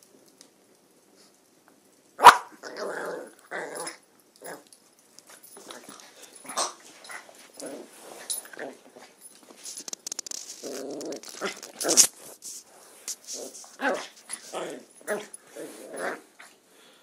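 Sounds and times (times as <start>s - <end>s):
puppy growling and whining: 2.6s - 4.7s, 10.6s - 12.0s, 13.4s - 16.5s.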